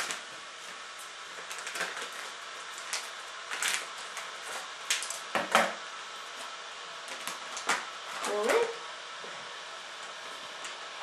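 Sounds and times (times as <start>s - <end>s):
sachet crinkling and rustling: 0.0s - 5.3s.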